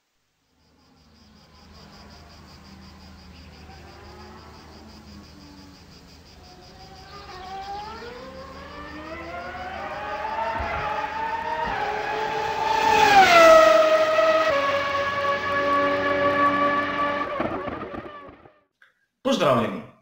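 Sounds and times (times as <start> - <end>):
racing car engine buzzing: 6.5 - 18.5.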